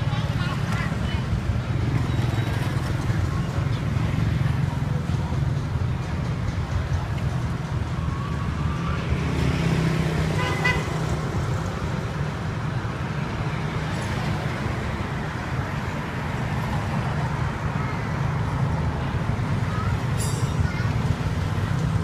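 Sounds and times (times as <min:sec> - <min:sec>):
road traffic rumble: 0:00.0 - 0:22.0
vehicle horn toot: 0:10.3 - 0:10.9.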